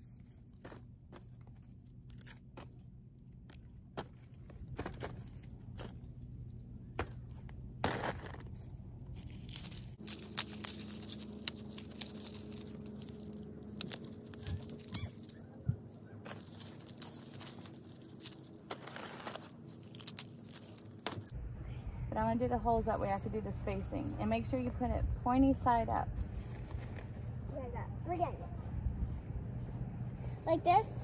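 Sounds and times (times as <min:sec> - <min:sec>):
garlic skins crackling and tearing: 0:00.0 - 0:15.6, 0:16.2 - 0:21.3.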